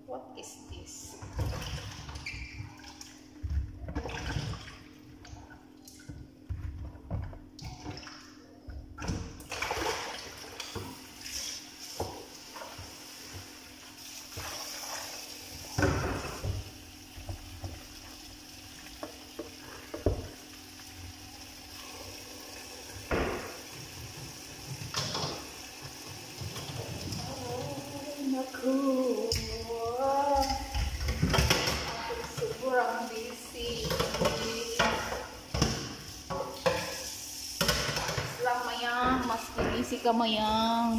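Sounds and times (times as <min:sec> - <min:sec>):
tap water splashing into sink: 0:01.2 - 0:11.0, 0:11.9 - 0:18.2, 0:18.8 - 0:20.4, 0:22.8 - 0:27.9, 0:30.3 - 0:32.7, 0:33.3 - 0:40.0.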